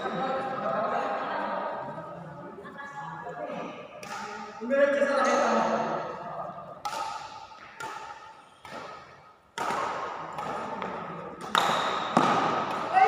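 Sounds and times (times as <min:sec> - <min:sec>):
badminton racket hits: 0:04.0 - 0:04.6, 0:06.8 - 0:13.0.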